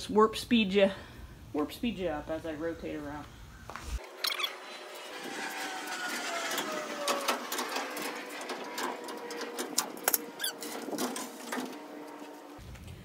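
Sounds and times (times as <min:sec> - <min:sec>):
clicks and squeaks: 0:04.0 - 0:12.2.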